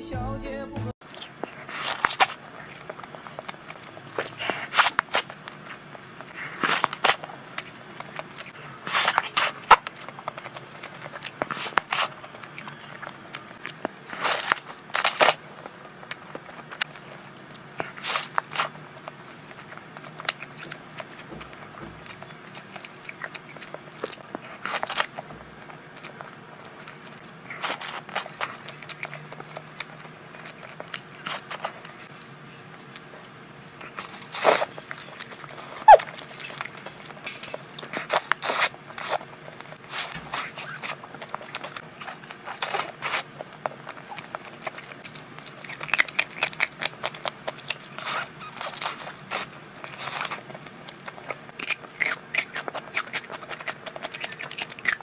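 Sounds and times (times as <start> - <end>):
chewing: 1.0 - 55.0
crunchy bites: 1.0 - 55.0.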